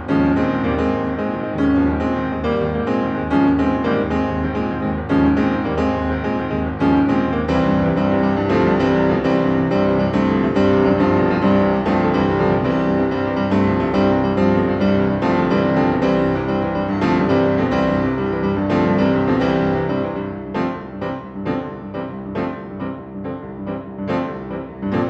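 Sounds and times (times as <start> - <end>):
grand piano playing: 0.0 - 25.0.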